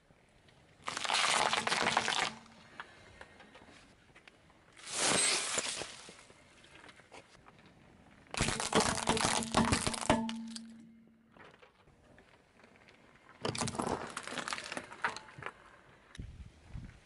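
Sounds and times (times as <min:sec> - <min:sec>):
car tyre crunching small objects: 0:00.8 - 0:02.8, 0:04.7 - 0:16.1.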